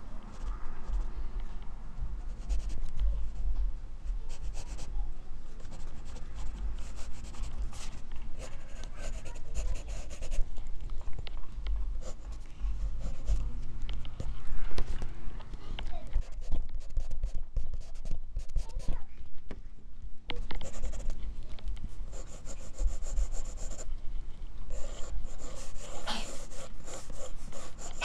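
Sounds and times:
pencil scratching on paper: 2.3s - 2.8s, 4.2s - 4.9s, 5.6s - 10.5s, 12.0s - 13.5s, 16.2s - 18.9s, 20.6s - 21.2s, 22.1s - 23.9s, 24.7s - 28.0s.

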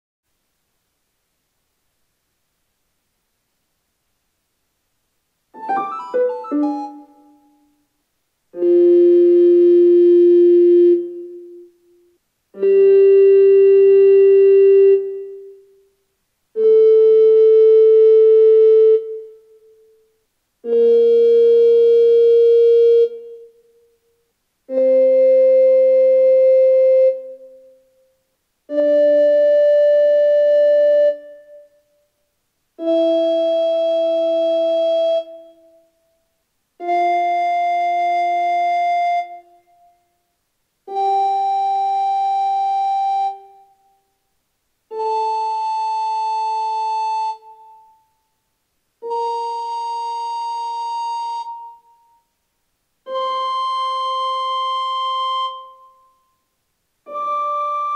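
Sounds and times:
recorder playing a scale: 5.6s - 7.5s, 8.6s - 11.7s, 12.6s - 15.6s, 16.6s - 19.4s, 20.6s - 23.6s, 24.7s - 27.6s, 28.7s - 31.7s, 32.8s - 35.6s, 36.8s - 39.7s, 40.9s - 43.8s, 44.9s - 48.0s, 49.0s - 52.2s, 53.0s - 56.1s, 57.1s - 57.9s.

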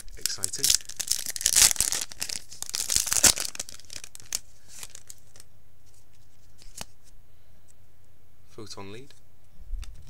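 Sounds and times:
foil wrapper crinkling: 0.0s - 5.5s.

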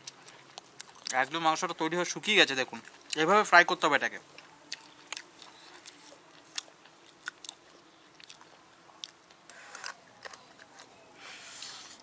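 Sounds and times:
man crunching fried chicken: 0.0s - 1.4s, 4.3s - 10.9s.

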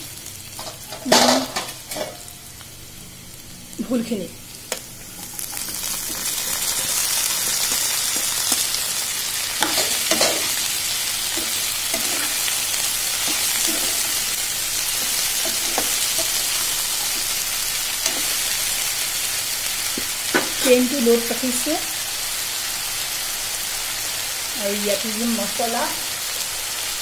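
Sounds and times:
oil sizzling in a wok: 0.0s - 27.0s
spatula scraping a pan: 9.6s - 17.4s.

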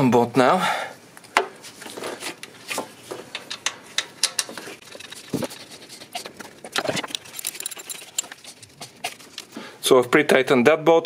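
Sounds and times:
hand tools and bolts clicking: 3.2s - 9.6s.

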